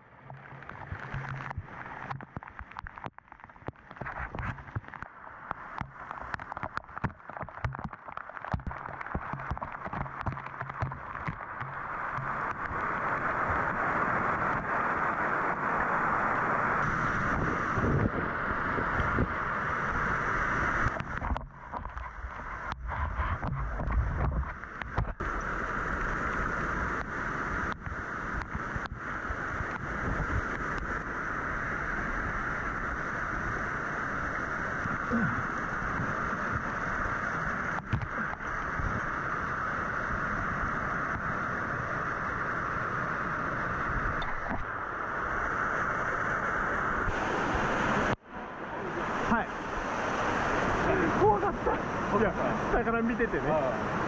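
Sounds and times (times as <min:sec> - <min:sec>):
waterfall roaring: 0:00.2 - 0:22.8, 0:31.5 - 0:54.0
wind buffeting microphone: 0:16.8 - 0:25.6.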